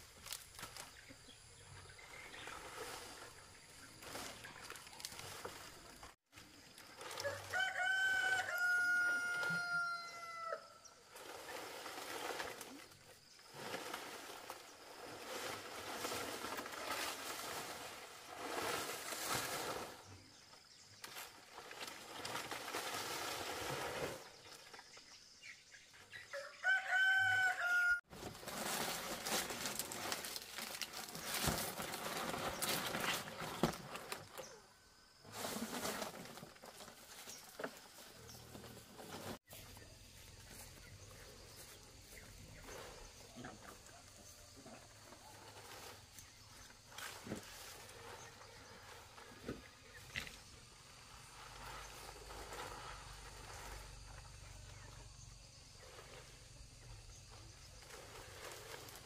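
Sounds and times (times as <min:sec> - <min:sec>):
palm fronds rustling and crackling: 0:00.0 - 0:25.2, 0:26.0 - 0:59.0
rooster crowing: 0:07.2 - 0:10.8, 0:26.3 - 0:28.0.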